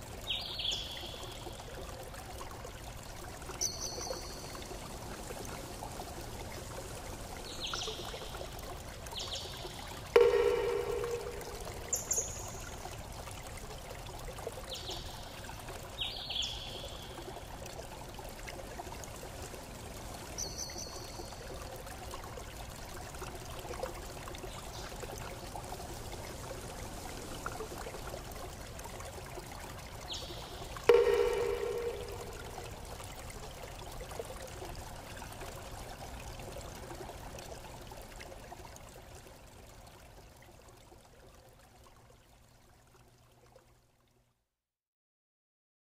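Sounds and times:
water trickling: 0.0s - 44.4s
loud ringing tone: 10.2s - 12.1s, 30.9s - 32.7s.

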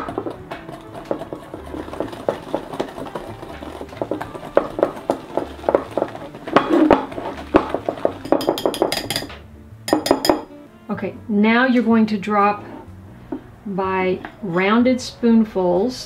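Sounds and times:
whisk scraping metal bowl: 0.0s - 9.2s.

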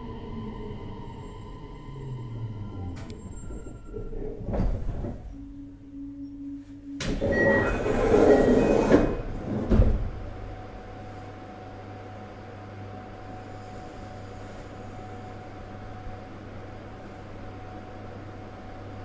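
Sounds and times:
steady low tone: 0.0s - 8.0s
train equipment humming: 0.0s - 19.0s
train doors thumping shut: 7.0s - 10.6s.

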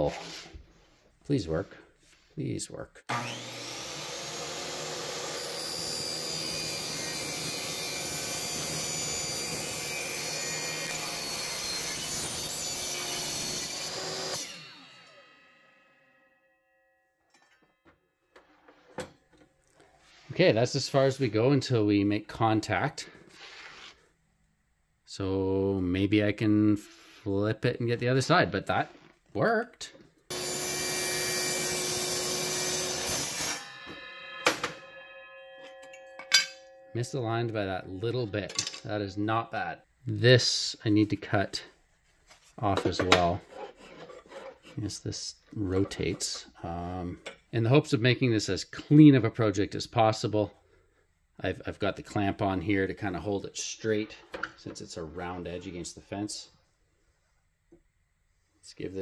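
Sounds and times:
saw motor winding down: 3.1s - 9.2s, 30.3s - 33.8s
miter saw cutting metal: 3.1s - 16.0s, 30.3s - 35.3s
saw blade winding down ringing: 30.3s - 37.2s.

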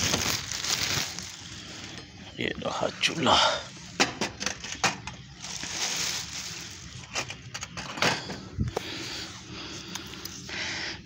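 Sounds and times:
plastic wrapping rustling: 0.0s - 2.1s, 4.3s - 9.1s.

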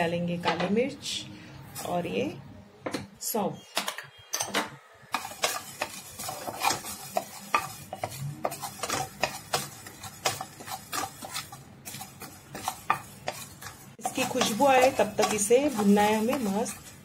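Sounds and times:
spatula scraping seeds in pan: 5.1s - 17.0s.

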